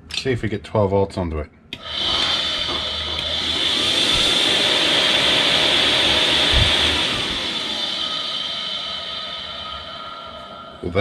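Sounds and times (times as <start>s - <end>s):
fan motor whine: 1.7s - 11.0s
rushing air: 1.9s - 11.0s.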